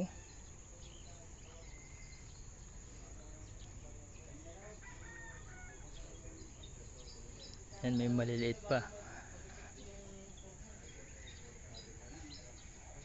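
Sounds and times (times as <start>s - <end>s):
low outdoor background: 0.0s - 13.0s
distant rooster crowing: 1.6s - 2.5s, 4.7s - 6.2s.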